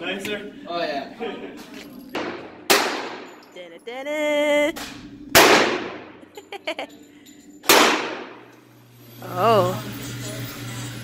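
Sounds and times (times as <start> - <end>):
pistol shots with reverb: 2.2 - 3.3, 5.3 - 6.2, 7.7 - 8.4.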